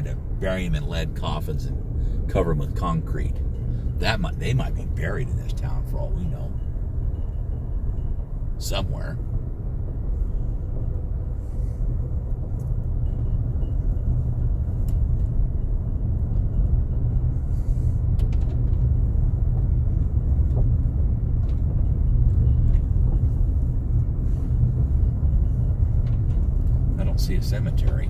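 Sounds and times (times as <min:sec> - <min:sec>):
car driving on gravel: 0:18.0 - 0:28.0.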